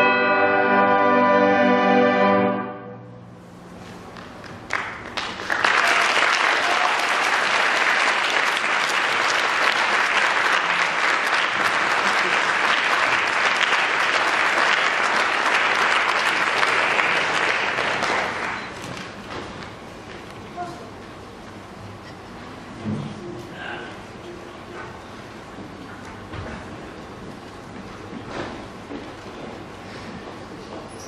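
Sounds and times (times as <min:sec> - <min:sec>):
audience applauding: 0:04.2 - 0:19.2.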